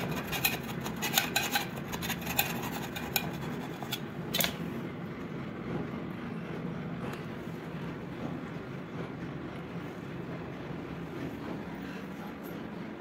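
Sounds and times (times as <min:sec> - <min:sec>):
metal blade scraping ceramic tile: 0:00.0 - 0:04.5
steady low hum: 0:00.0 - 0:13.0.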